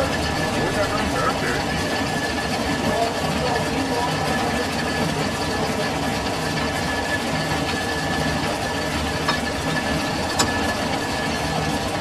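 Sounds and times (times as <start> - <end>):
lathe running: 0.0 - 12.0
thin steady whine: 0.0 - 12.0
sharp metallic clicks: 9.2 - 11.4.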